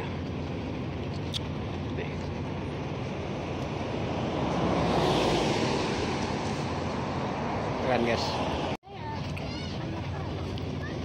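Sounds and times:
traffic rumble: 0.0 - 11.0
car passing: 2.0 - 8.8.

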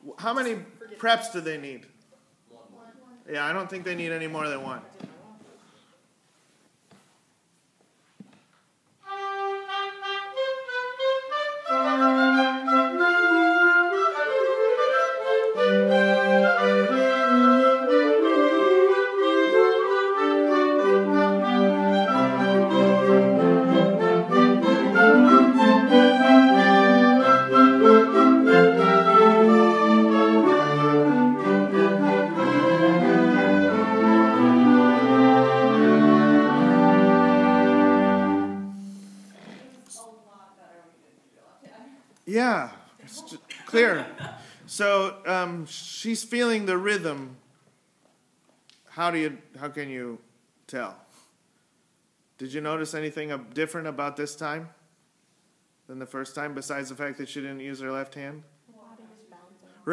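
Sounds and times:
instrumental ensemble playing: 9.0 - 39.4.

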